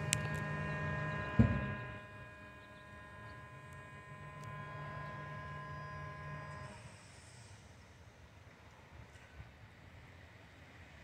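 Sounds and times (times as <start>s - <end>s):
machinery hum: 0.0s - 8.6s
high steady whine: 0.0s - 8.9s
thump: 1.4s - 1.7s.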